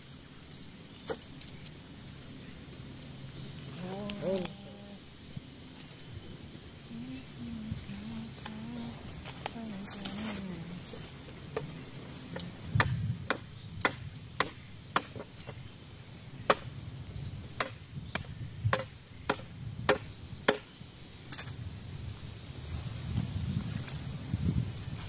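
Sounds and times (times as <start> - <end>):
blade chopping into wood: 12.8 - 15.3.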